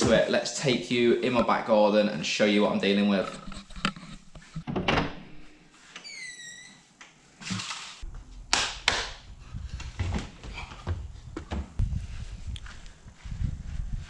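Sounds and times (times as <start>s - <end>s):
door squeak: 6.0s - 6.9s
wind rumble on microphone: 9.1s - 14.0s.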